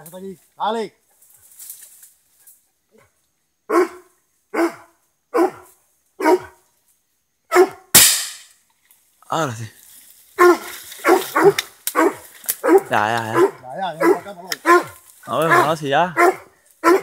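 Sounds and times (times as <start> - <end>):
dog barking: 3.7 - 6.6, 7.5 - 7.9, 10.4 - 17.0.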